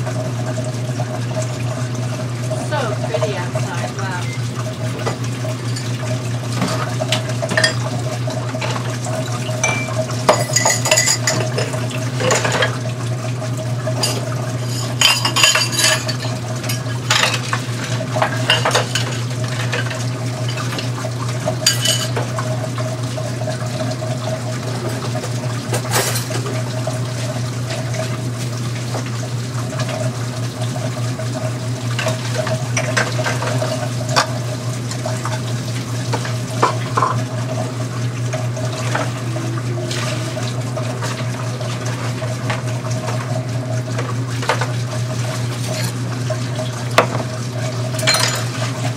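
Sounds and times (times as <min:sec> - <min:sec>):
water running: 0:00.0 - 0:48.9
dishes clattering in a sink: 0:02.7 - 0:12.9, 0:13.9 - 0:22.5, 0:24.7 - 0:26.7, 0:31.9 - 0:35.5, 0:36.1 - 0:37.4, 0:38.3 - 0:48.9.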